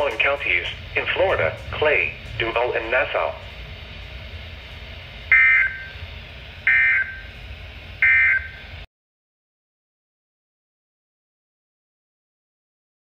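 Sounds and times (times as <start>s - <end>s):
radio receiver hiss: 0.0s - 8.9s
harsh digital data bursts: 5.3s - 6.0s, 6.7s - 7.3s.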